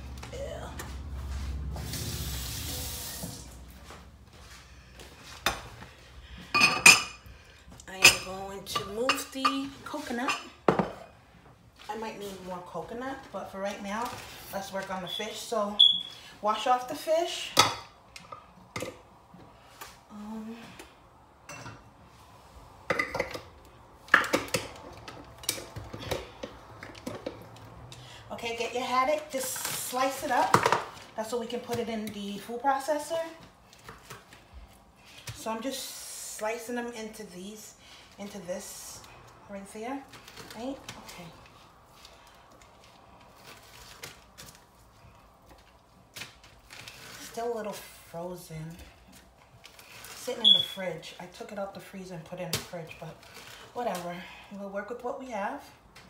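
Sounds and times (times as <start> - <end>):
dishes and utensils clattering: 6.4 - 7.2.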